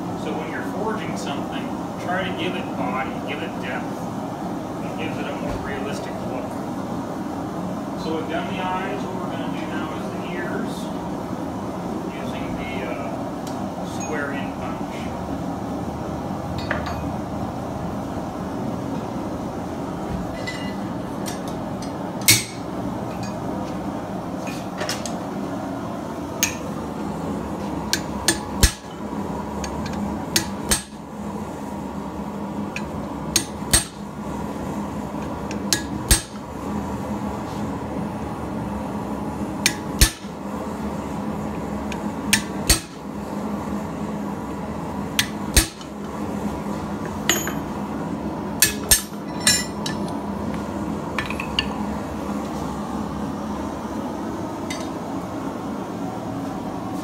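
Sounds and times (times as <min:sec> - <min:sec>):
hammer striking metal punch: 0:33.4 - 0:34.0, 0:42.4 - 0:43.0, 0:45.2 - 0:45.9, 0:47.3 - 0:47.7.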